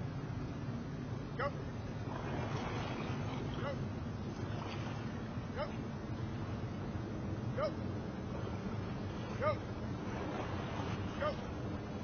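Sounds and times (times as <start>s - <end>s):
wind and water noise: 0.0s - 12.0s
crew paddling in unison: 2.0s - 5.9s.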